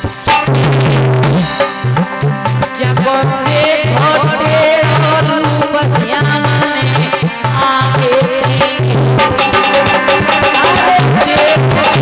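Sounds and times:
harmonium: 0.0 - 12.0
rattling percussion: 0.0 - 12.0
steady drum beat: 0.0 - 12.0
woman singing through microphone: 2.7 - 12.0.

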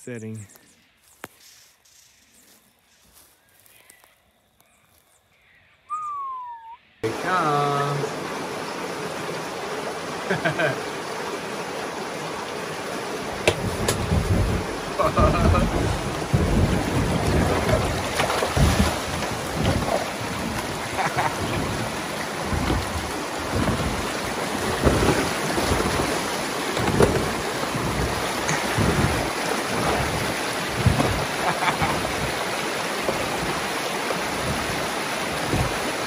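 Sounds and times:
water splashes: 6.0 - 36.0
river water rushing: 7.0 - 36.0
wind on microphone: 13.5 - 32.4, 34.3 - 36.0.

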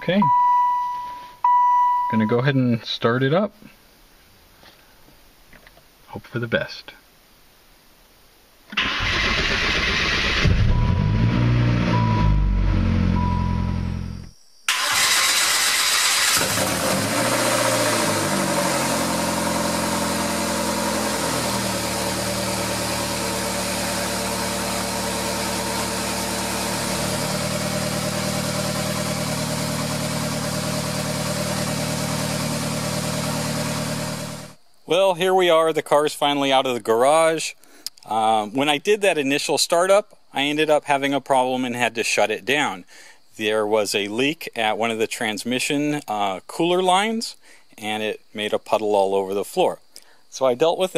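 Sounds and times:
car engine starting and revving: 8.8 - 34.5.

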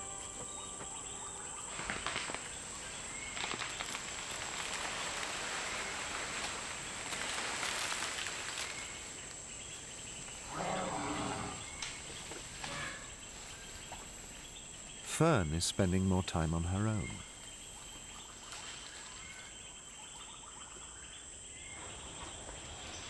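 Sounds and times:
elephant rustling through undergrowth: 0.1 - 15.0, 17.3 - 20.2, 21.5 - 23.0.

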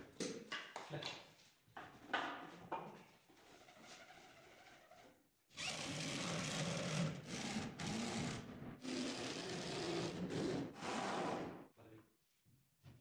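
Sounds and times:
electric drill driving screws: 5.6 - 10.2.

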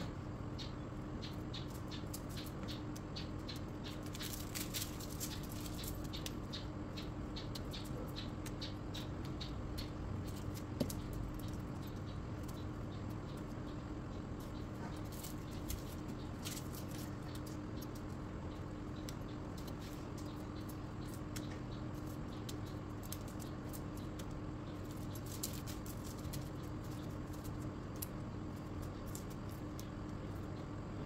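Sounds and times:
steady low hum: 0.0 - 31.0
dry skin crackling: 3.9 - 6.4, 15.0 - 18.2, 19.1 - 30.5.

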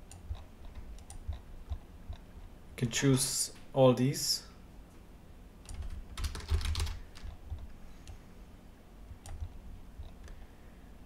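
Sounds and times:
typing on computer keyboard: 5.6 - 7.6.

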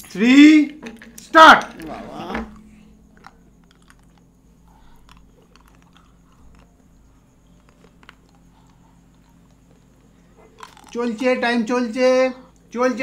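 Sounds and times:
low steady hum: 0.0 - 13.0
ice clicking against teeth: 3.1 - 4.3, 4.9 - 11.0.

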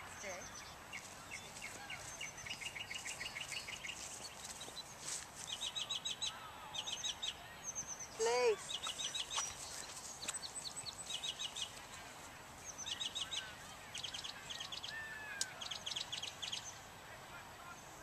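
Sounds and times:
small birds chirping: 0.0 - 16.9
outdoor background noise: 0.0 - 18.0.

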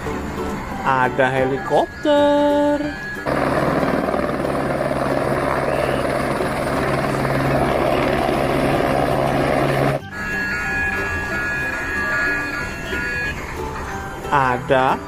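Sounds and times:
low engine drone: 2.8 - 14.3
helicopter rotor chop: 3.2 - 10.0.

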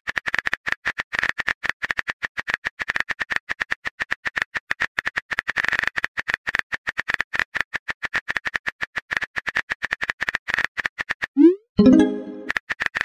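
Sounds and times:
upward sliding tone: 11.4 - 12.5.

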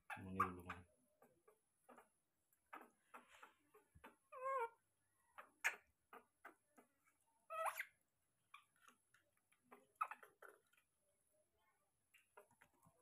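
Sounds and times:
monkey squeak: 7.5 - 8.0
faint eating clicks and smacks: 8.4 - 11.4.

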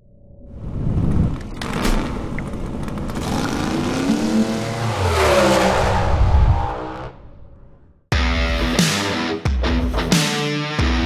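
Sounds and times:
race car engine revving: 3.0 - 7.3.

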